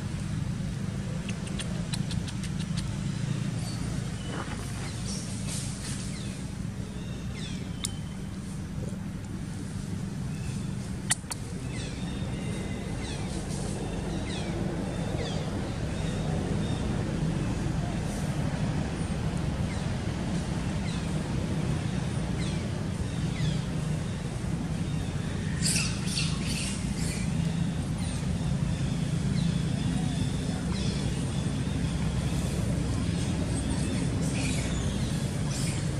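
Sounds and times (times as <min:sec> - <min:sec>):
steady low hum: 0:00.0 - 0:35.9
birds chirping: 0:00.9 - 0:35.9
sharp click: 0:01.2 - 0:02.9, 0:11.1 - 0:11.4.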